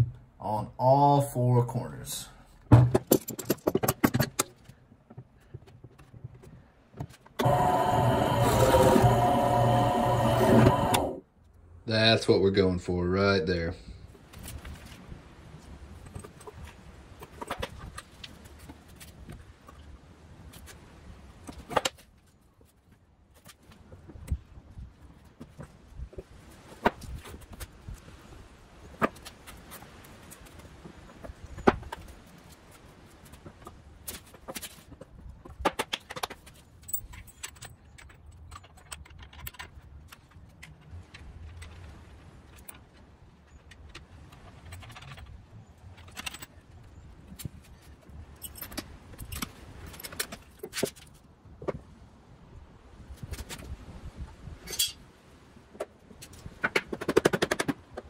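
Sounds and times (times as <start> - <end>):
wooden boards knocking: 2.7 - 4.4.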